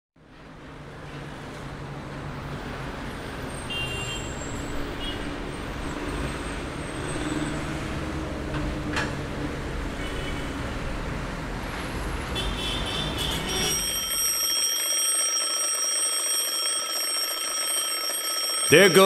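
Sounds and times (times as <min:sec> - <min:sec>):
alarm clock ringing: 0:13.5 - 0:19.0.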